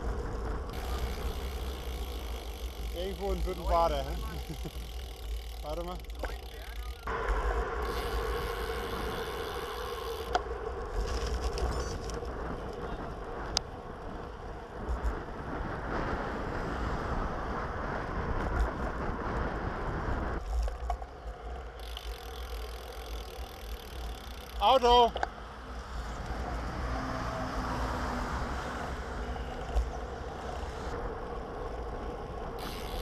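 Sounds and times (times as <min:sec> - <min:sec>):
wind rushing over microphone: 0:00.0 - 0:04.5, 0:07.1 - 0:21.8
bike tyre noise on asphalt: 0:00.0 - 0:33.0.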